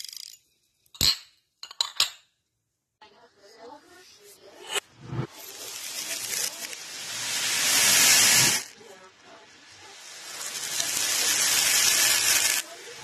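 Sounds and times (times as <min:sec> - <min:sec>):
reversed beads rattling: 0:10.2 - 0:13.0.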